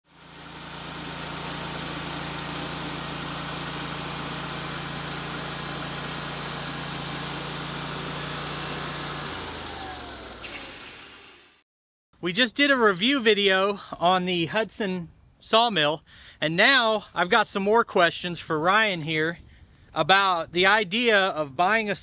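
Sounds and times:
sawmill engine running: 0.1s - 11.6s
band blade hissing through log: 1.0s - 8.0s.

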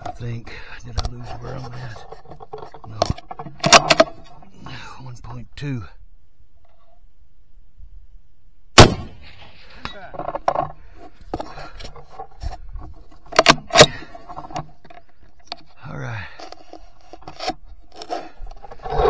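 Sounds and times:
rifle shot: 8.8s - 9.4s.

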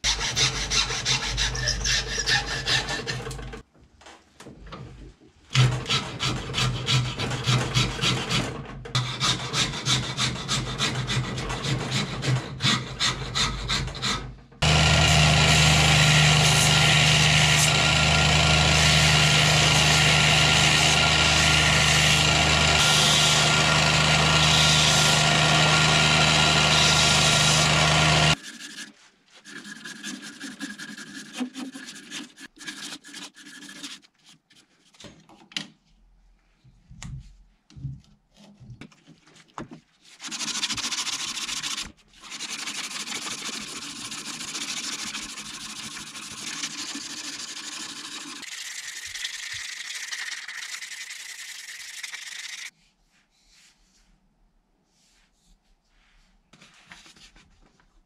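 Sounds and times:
belt sander grinding wood: 12.9s - 28.9s
hand sanding wood with sandpaper: 28.3s - 34.1s, 40.0s - 48.4s, 54.8s - 57.3s.

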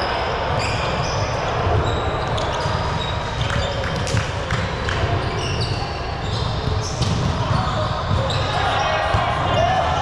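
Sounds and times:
murmur of voices: 0.0s - 10.0s
sneakers squeaking on court: 0.5s - 9.0s.

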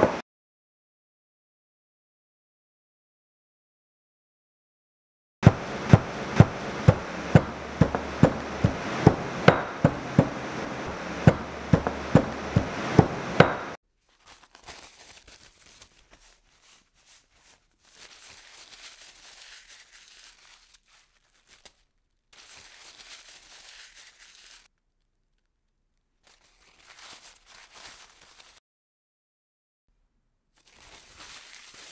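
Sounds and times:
pestle knocking in stone mortar: 5.4s - 13.8s.

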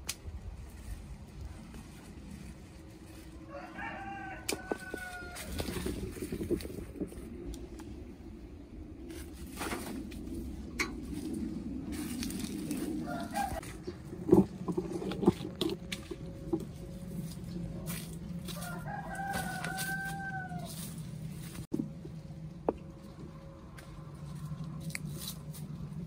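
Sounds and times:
rooster crowing: 3.3s - 5.9s, 12.7s - 13.7s, 17.9s - 21.0s.

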